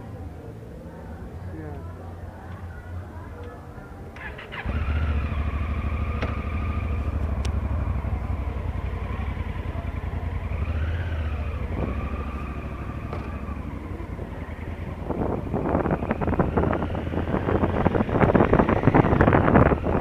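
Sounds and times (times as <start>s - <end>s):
motorcycle engine pulling away: 4.2s - 20.0s.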